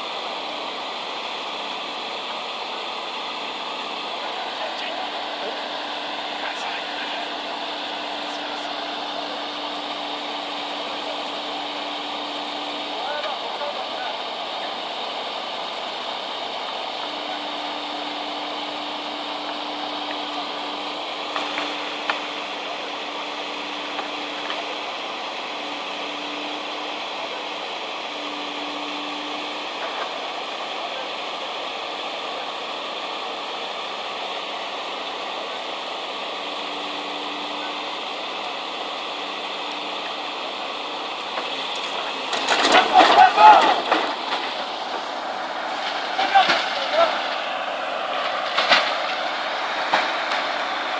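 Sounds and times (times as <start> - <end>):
excavator engine drone: 0.0 - 50.9
faint steady whine: 0.0 - 50.9.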